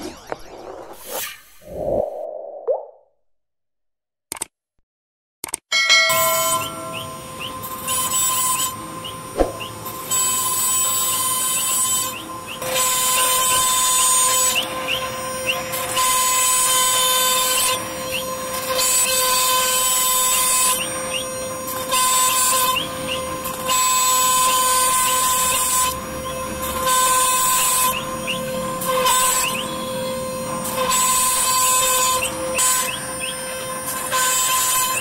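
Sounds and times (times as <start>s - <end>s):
short rising chirps: 0.0s - 3.0s
cnc router spindle whine: 6.4s - 35.0s
router bit cutting wood: 6.5s - 35.0s.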